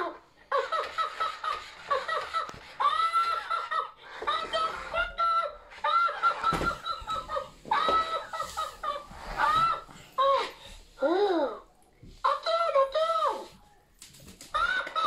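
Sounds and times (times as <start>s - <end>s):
toy laughing and chattering: 0.0s - 9.6s, 14.6s - 15.0s.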